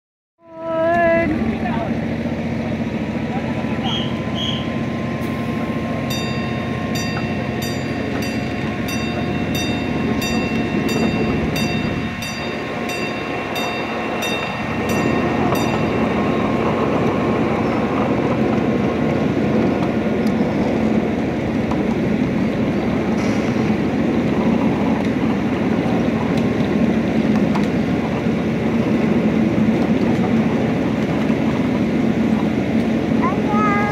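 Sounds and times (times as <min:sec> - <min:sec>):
miniature train rumbling: 0:00.5 - 0:33.9
train bell ringing: 0:03.9 - 0:17.9.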